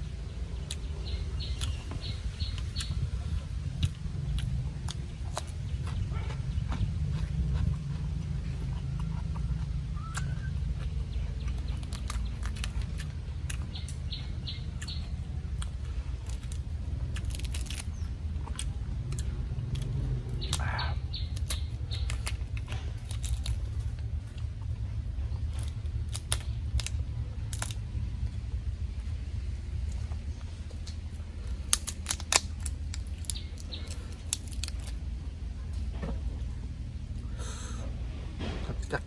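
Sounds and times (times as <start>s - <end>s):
low background rumble: 0.0s - 39.0s
prawn shell crackling: 1.3s - 28.4s, 29.8s - 35.2s
faint bird chirps: 8.9s - 12.4s.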